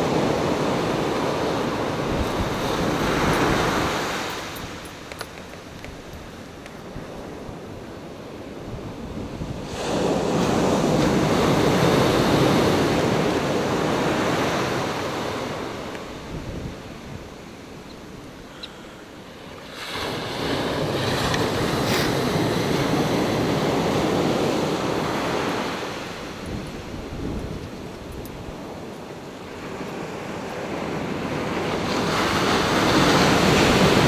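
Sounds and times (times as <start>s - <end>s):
ocean surf breaking: 0.0s - 34.0s
wind on microphone: 0.0s - 34.0s.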